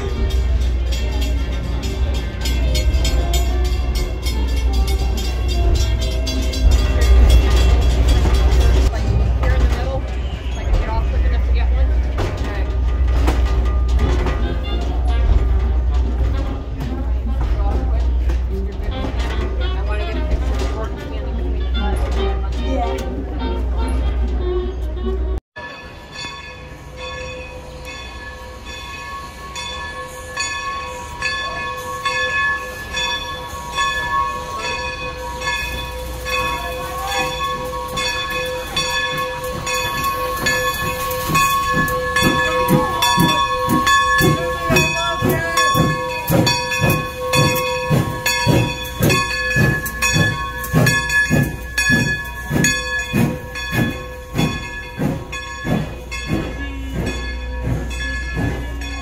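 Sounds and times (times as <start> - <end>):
steam locomotive chuffing: 0.0 - 24.9, 25.6 - 59.0
steam hissing: 27.5 - 59.0.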